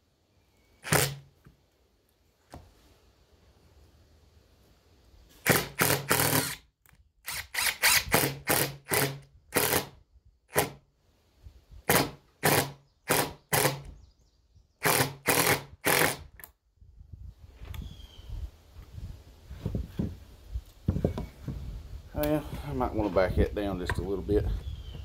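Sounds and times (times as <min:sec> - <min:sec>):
power drill driving screw into wood: 0:00.8 - 0:01.3, 0:05.4 - 0:10.8, 0:11.8 - 0:13.9, 0:14.8 - 0:16.5.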